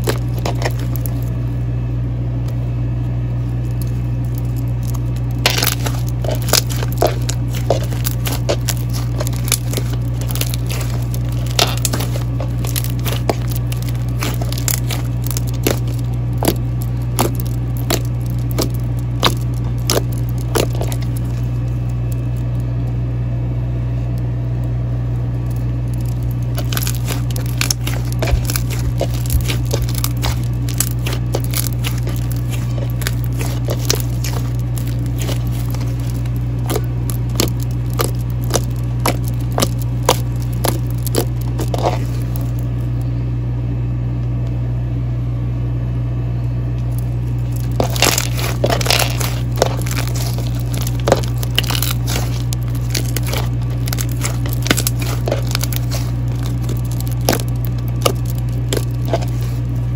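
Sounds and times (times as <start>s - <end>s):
slime crackling and popping: 0.0s - 1.4s, 3.4s - 22.7s, 25.3s - 42.8s, 46.8s - 59.9s
steady low hum: 0.0s - 59.9s.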